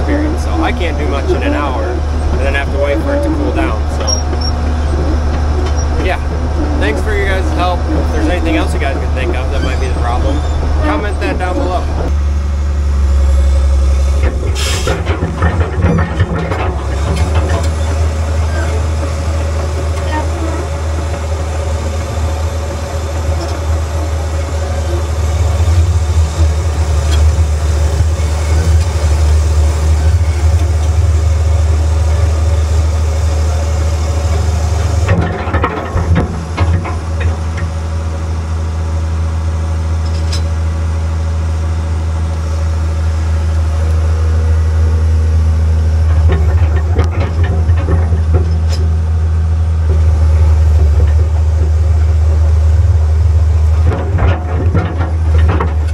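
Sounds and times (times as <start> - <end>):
diesel engine running: 0.0 - 55.9
metal clanking: 14.1 - 32.8, 33.5 - 38.2, 45.8 - 55.9.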